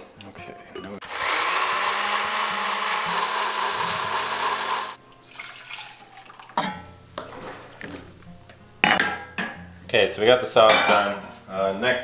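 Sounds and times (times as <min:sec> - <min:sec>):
blender running: 0:01.0 - 0:05.0
sauce pouring into saucepan: 0:05.2 - 0:06.5.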